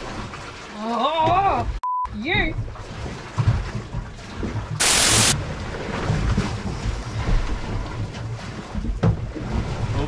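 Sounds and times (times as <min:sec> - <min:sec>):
waves washing against hull: 0:00.0 - 0:10.0.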